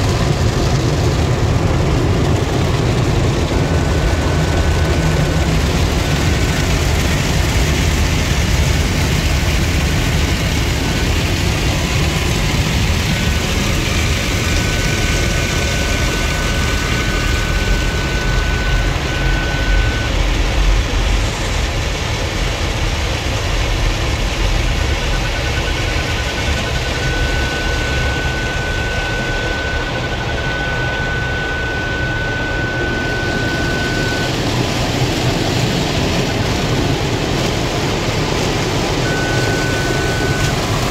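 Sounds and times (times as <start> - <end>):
low rumble of wash machinery: 0.0 - 40.9
parking sensor beeps: 2.0 - 7.8, 8.8 - 20.4, 24.8 - 40.9
car wash brushes and water spray: 34.4 - 40.9.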